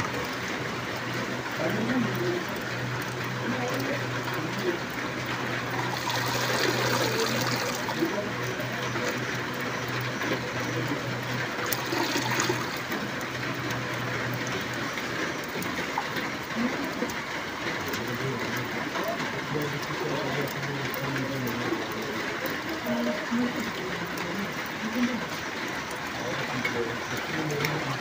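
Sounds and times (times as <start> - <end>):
rain hiss: 0.0 - 9.2
small water splashes: 2.1 - 9.3, 11.4 - 17.2.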